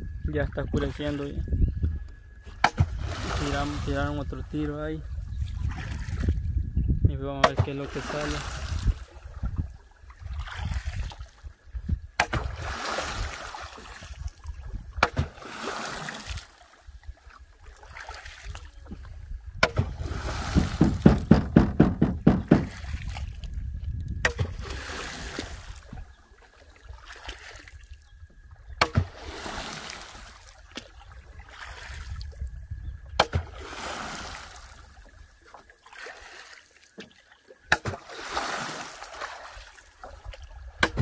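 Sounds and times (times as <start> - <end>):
water splashing beside boat: 0.4 - 1.6, 2.3 - 6.6, 7.2 - 41.0
sharp knocks: 19.6 - 22.8, 40.8 - 41.0.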